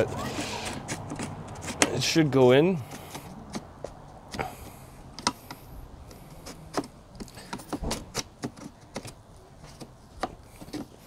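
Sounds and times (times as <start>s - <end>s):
plastic part clicking and knocking: 5.1s - 5.6s, 6.4s - 10.9s.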